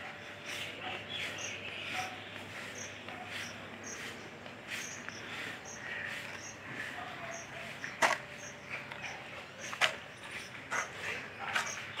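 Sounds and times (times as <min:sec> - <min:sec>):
rake scraping dry grass: 0:00.4 - 0:08.8.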